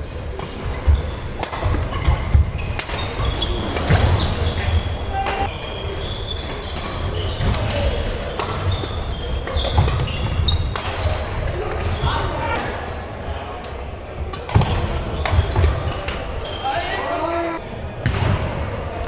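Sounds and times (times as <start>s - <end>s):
court shoes squeaking: 0.0s - 19.0s
racket hitting shuttlecock: 0.3s - 4.4s, 6.9s - 11.2s.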